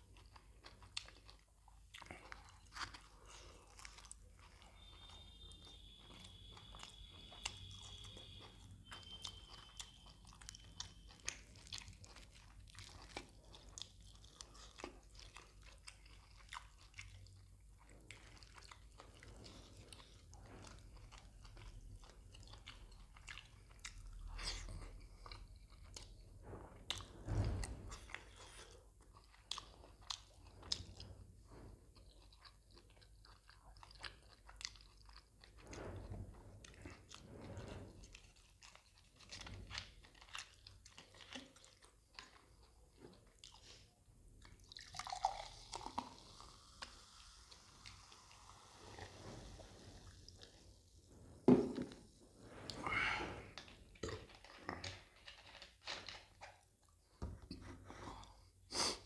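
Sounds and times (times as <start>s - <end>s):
chewing and biting food: 0.0s - 27.2s, 27.9s - 35.7s, 36.6s - 49.1s
cola fizzing in a glass: 44.6s - 50.7s.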